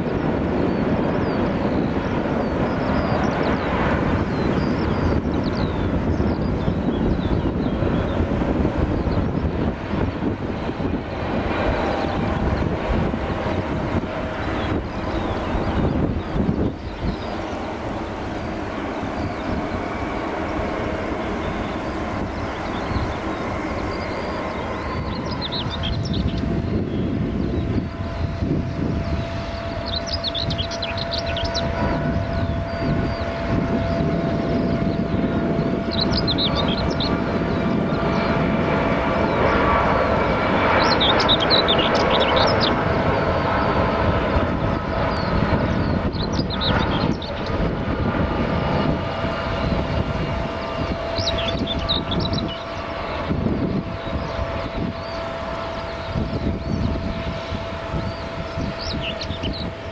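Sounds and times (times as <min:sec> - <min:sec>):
jet engines roaring: 0:00.0 - 0:59.9
small bird chirping: 0:22.6 - 0:28.3, 0:29.0 - 0:33.3, 0:40.7 - 0:42.9, 0:51.1 - 0:53.1, 0:58.0 - 0:59.7.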